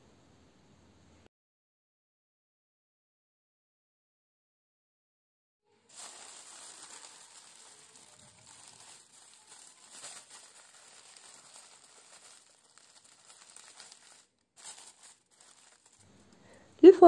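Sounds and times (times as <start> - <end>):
aluminium foil crinkling: 5.8 - 17.0.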